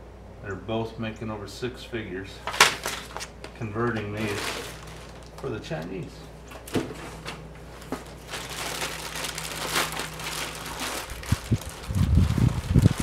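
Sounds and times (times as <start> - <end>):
plastic bag crinkling: 2.5 - 6.1, 7.2 - 13.0.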